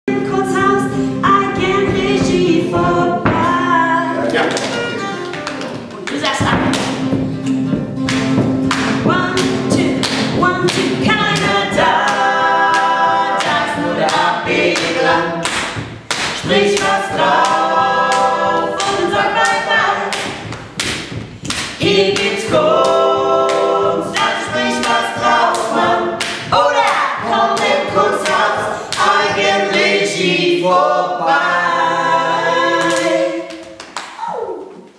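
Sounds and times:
group singing in harmony: 0.1s - 4.6s, 8.7s - 33.9s
hand claps and slaps: 4.2s - 29.5s, 32.8s - 34.2s.

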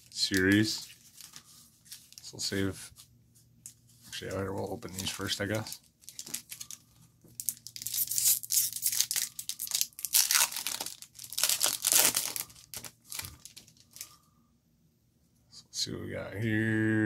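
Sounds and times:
foil wrapper crinkling and tearing: 4.8s - 14.2s.

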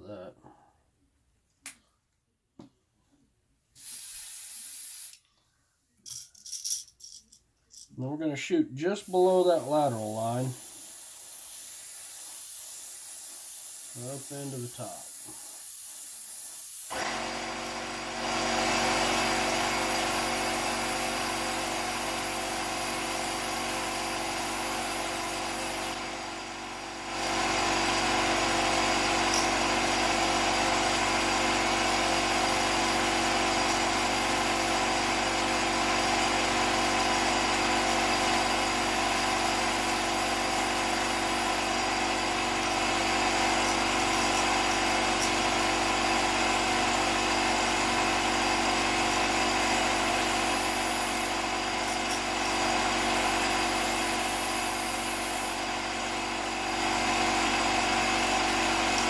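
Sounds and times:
air compressor running: 3.8s - 5.2s, 8.8s - 59.0s
airbrush hiss: 3.8s - 5.2s, 9.0s - 16.9s, 18.9s - 26.0s, 32.1s - 34.9s, 37.7s - 45.6s, 49.0s - 51.6s, 52.8s - 55.7s.

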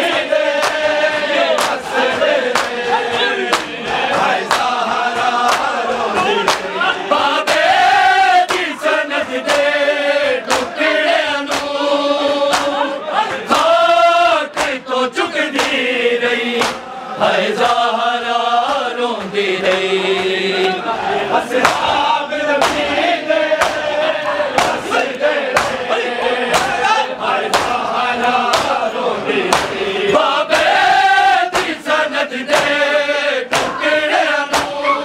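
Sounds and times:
lead reciter: 0.0s - 35.0s
men chanting in unison: 0.0s - 35.0s.

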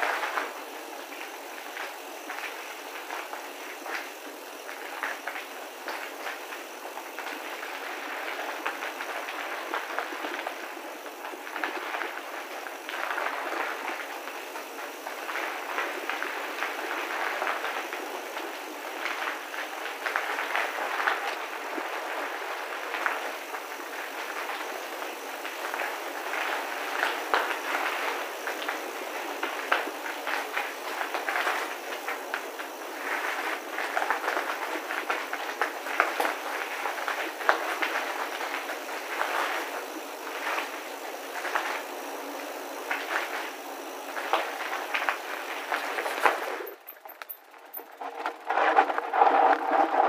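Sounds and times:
bicycle tyres rolling on rough path: 0.0s - 50.0s
bike rattles and clicks: 44.6s - 50.0s.

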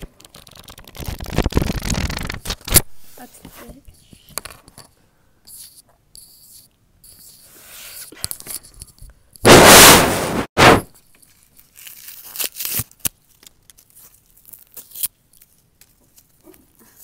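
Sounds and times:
candy wrappers crinkling: 11.2s - 16.5s.

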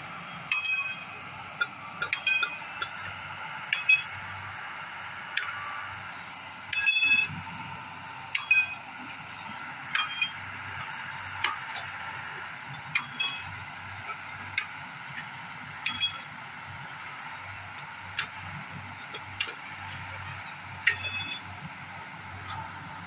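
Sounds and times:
steel striking steel: 0.5s - 3.1s, 3.7s - 4.2s, 6.7s - 7.3s, 8.3s - 8.9s, 9.9s - 10.4s, 13.0s - 13.6s, 15.8s - 16.3s, 20.8s - 21.4s.

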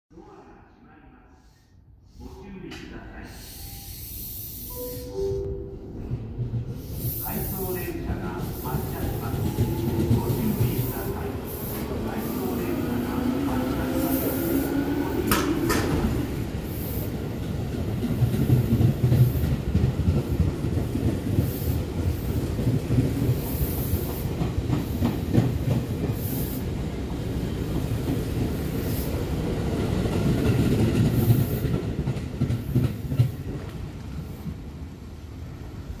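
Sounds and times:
train low rumble: 2.4s - 36.0s
train wheels clacking over rail joints: 15.3s - 16.2s.

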